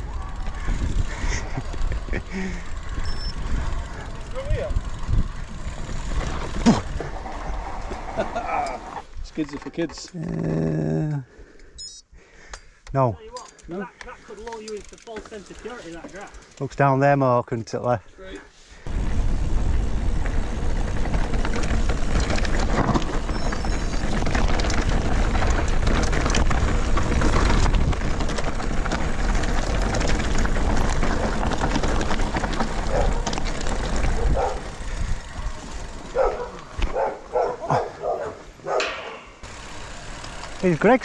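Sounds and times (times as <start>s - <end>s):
wind rumbling on microphone: 0.0s - 8.2s, 18.9s - 37.8s
bike tyres rolling and rattling: 0.0s - 10.9s, 13.3s - 17.2s, 18.8s - 41.0s
dog barking: 32.9s - 33.2s, 34.2s - 34.7s, 36.1s - 39.4s.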